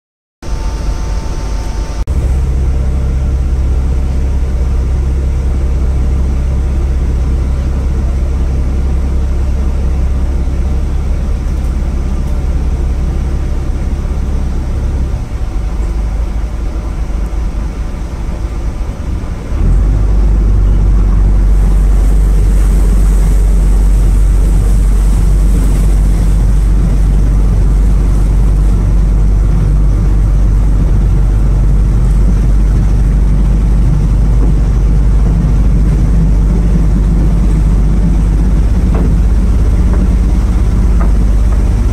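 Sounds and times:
ferry engine droning: 0:00.4 - 0:41.9
water noise: 0:00.4 - 0:41.9
wind rushing: 0:19.2 - 0:41.9.

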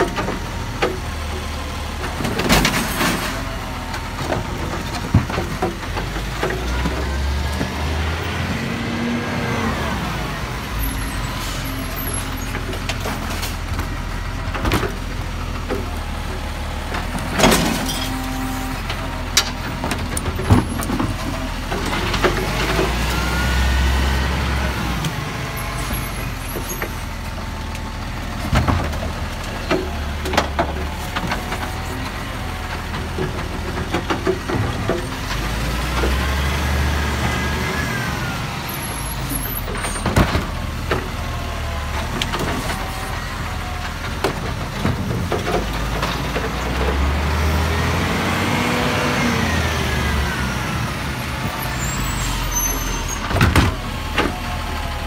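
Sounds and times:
diesel engine revving: 0:00.0 - 0:55.0
bins knocking and clattering: 0:04.2 - 0:07.9.

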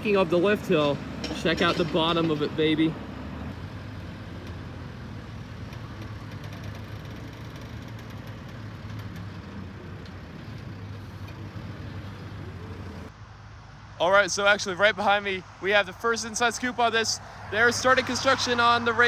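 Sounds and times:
diesel engine droning: 0:00.0 - 0:13.1.

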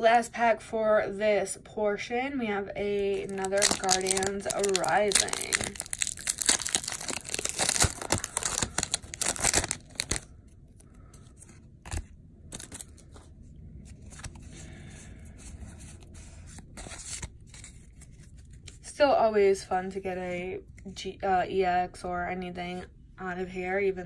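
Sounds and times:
cards rustling and clicking: 0:03.1 - 0:14.7
foil wrapper tearing and crinkling: 0:03.2 - 0:10.3, 0:11.9 - 0:13.0.

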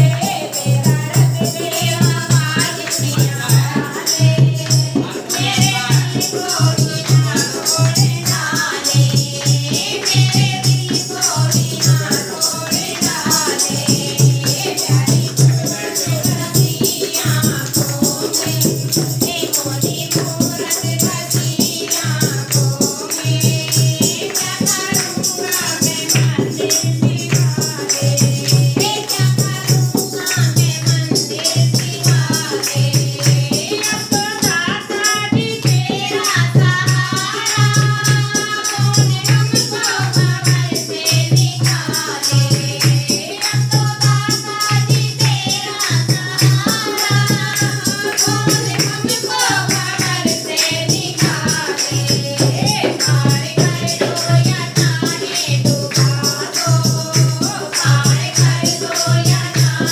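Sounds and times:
barrel drum beat: 0:00.0 - 0:59.9
women singing devotional song: 0:00.0 - 0:59.9.

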